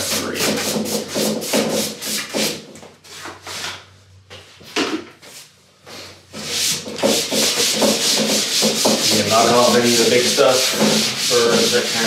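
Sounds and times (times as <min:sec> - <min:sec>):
hand broom sweeping wood: 0:06.0 - 0:12.0
rubbing on wood: 0:06.4 - 0:12.0.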